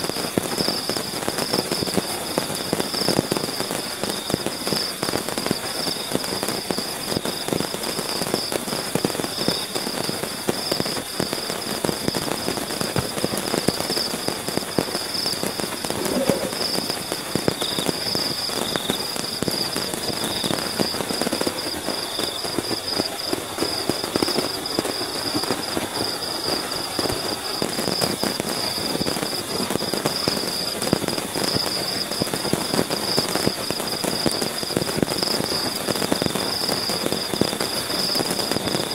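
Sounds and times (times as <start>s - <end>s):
heavy rain on tent tarp: 0.0s - 38.9s
high-pitched pulsing tone: 15.8s - 16.9s.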